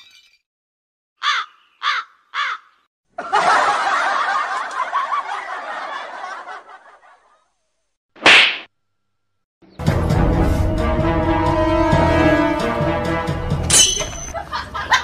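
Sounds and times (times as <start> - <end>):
short cawing calls: 1.2 - 2.9
audience laughter: 3.1 - 7.5, 14.3 - 15.0.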